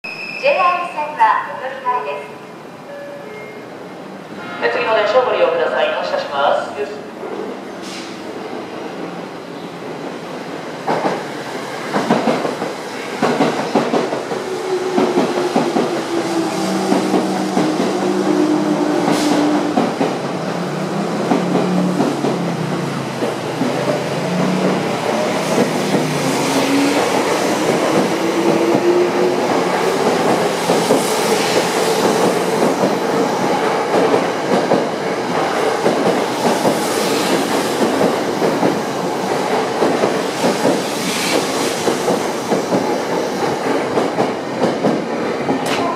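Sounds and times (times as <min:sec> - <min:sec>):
wheels clacking on rails: 0:10.8 - 0:45.9.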